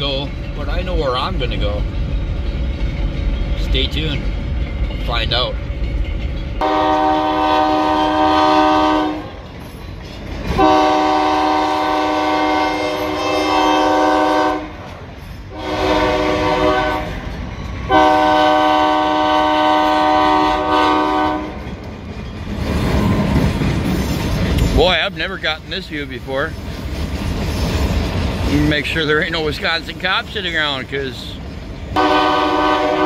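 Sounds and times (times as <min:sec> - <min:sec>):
locomotive air horn blasts: 0:06.6 - 0:09.3, 0:10.6 - 0:14.8, 0:15.5 - 0:17.2, 0:17.9 - 0:21.6, 0:32.0 - 0:33.0.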